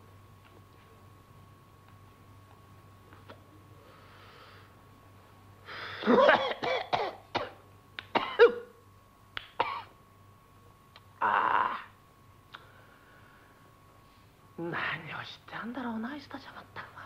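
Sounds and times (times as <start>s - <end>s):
soft breath: 3.7s - 4.8s, 12.6s - 14.4s
person coughing hard: 6.0s - 8.7s, 9.6s - 9.9s.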